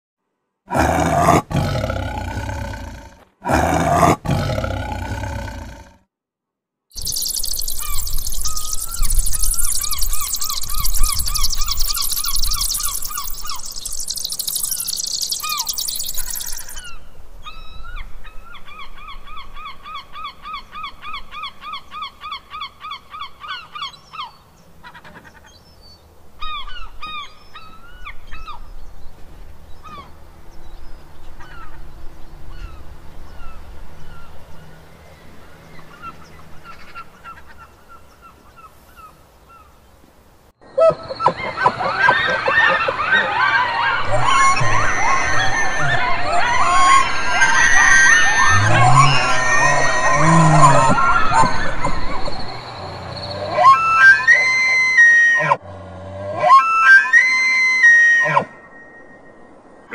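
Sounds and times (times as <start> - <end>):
bird calls: 7.0 - 55.0.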